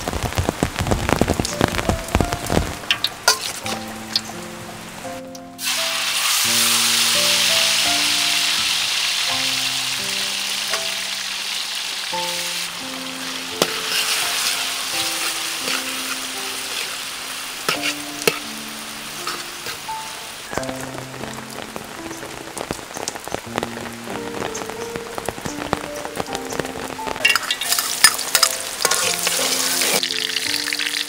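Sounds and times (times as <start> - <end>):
meat sizzling in hot oil: 0.0 - 31.0
metal spatula scraping wok: 3.0 - 4.3, 12.3 - 20.1, 27.3 - 30.1.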